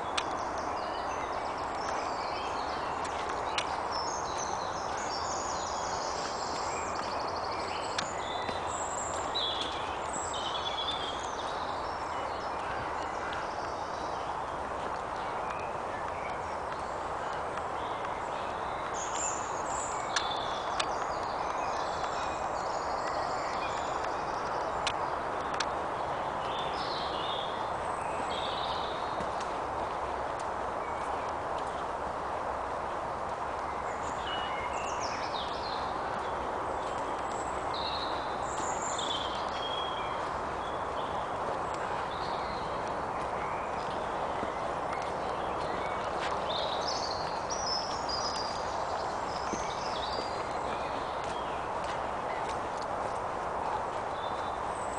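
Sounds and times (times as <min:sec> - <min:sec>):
birds chirping and trilling: 0:00.0 - 0:25.7.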